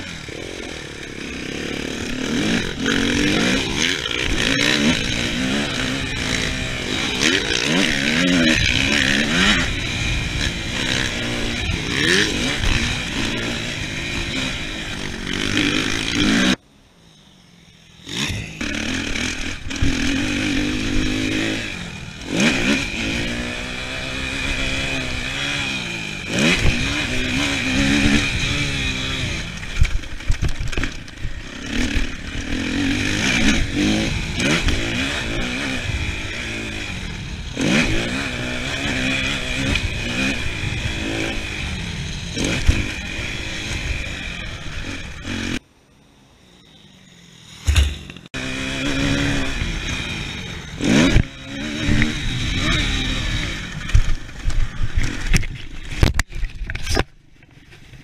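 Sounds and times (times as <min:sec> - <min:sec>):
motocross bike revving: 0:00.0 - 0:16.6, 0:17.9 - 0:45.6, 0:46.8 - 0:57.1.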